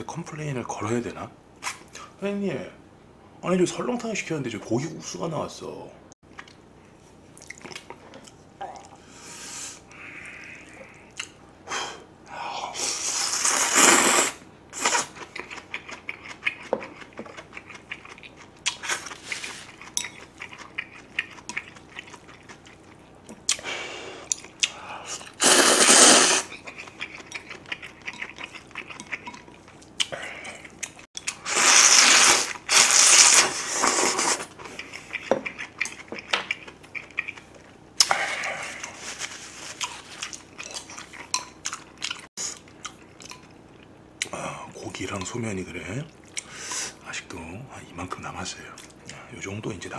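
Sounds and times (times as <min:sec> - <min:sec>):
chewing: 0:07.4 - 0:09.0, 0:14.8 - 0:25.4, 0:26.4 - 0:31.9, 0:32.5 - 0:44.4
noodles and broth slurping: 0:12.8 - 0:15.2, 0:25.1 - 0:26.8, 0:31.3 - 0:35.0.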